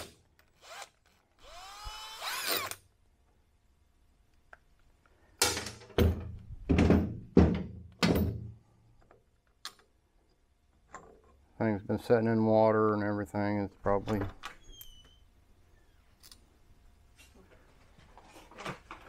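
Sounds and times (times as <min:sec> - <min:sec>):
cordless drill whirring: 0:00.6 - 0:02.8
heavy knocks: 0:06.0 - 0:08.6.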